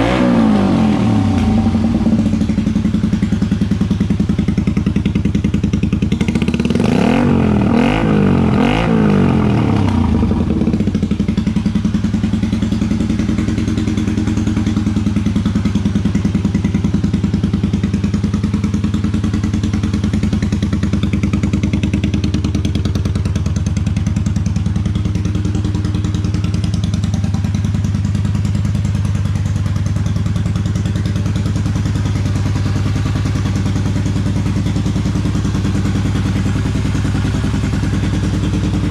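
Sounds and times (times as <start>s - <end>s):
motorcycle engine idling: 0.0s - 38.9s
motorcycle engine revving: 0.0s - 38.9s.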